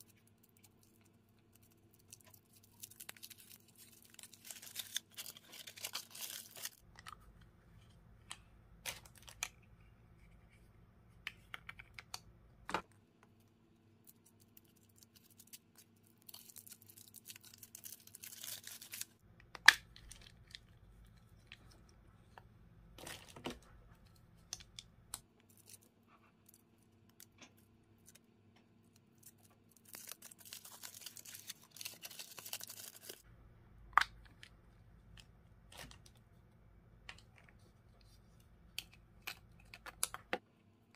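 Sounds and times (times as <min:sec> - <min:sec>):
foil wrapper crinkling: 0:00.8 - 0:06.8, 0:16.2 - 0:19.2, 0:29.2 - 0:33.2.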